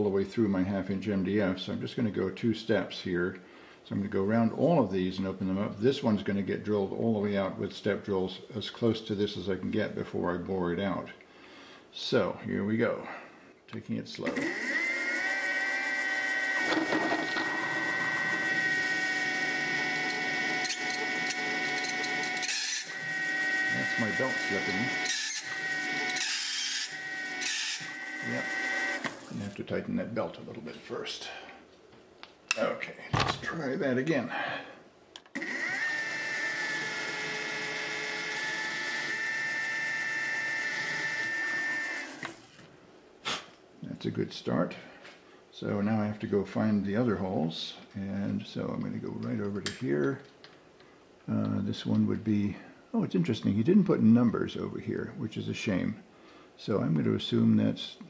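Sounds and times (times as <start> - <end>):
mill spindle high whine: 14.2 - 29.5, 35.4 - 42.6
drill cutting into wood: 14.3 - 29.6, 35.4 - 42.6.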